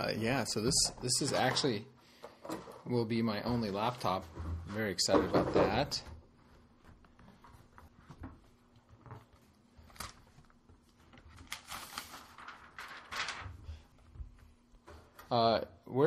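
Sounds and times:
plastic sleeve rustling: 6.4s - 14.4s.

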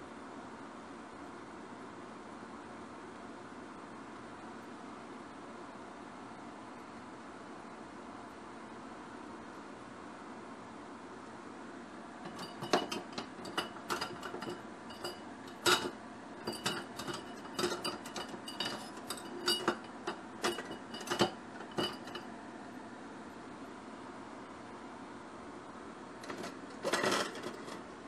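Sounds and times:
utensils and dishes clinking: 12.2s - 22.3s, 26.2s - 27.8s.

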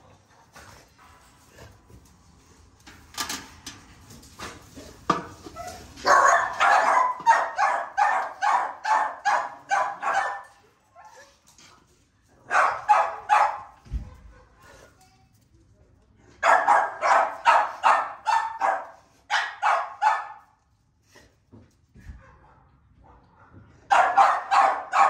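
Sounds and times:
dogs barking: 6.0s - 11.2s, 12.5s - 14.8s, 16.4s - 20.4s, 22.2s - 25.0s.

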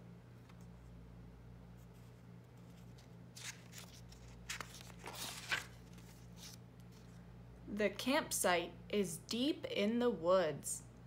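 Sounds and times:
low steady hum: 0.0s - 11.0s
paper page turning: 1.8s - 7.2s.

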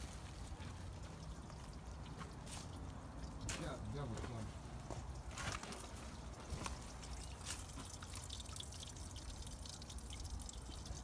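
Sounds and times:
water dripping into pool: 0.0s - 4.1s, 4.7s - 11.0s.

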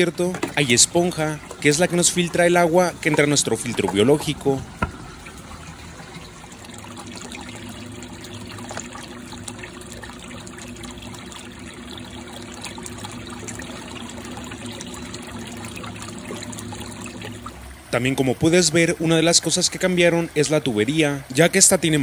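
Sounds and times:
water trickling and splashing: 0.0s - 22.0s.

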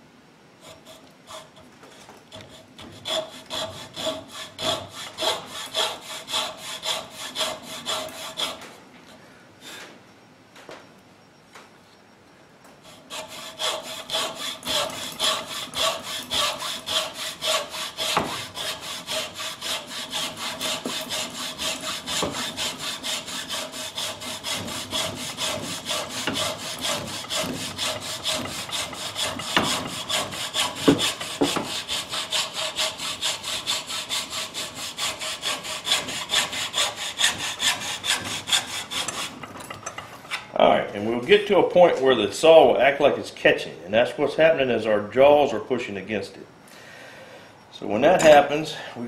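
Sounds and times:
hacksaw cutting wood: 2.3s - 8.8s, 12.8s - 40.4s
sharp knocks: 18.1s - 18.4s, 26.2s - 30.0s, 30.7s - 31.8s.

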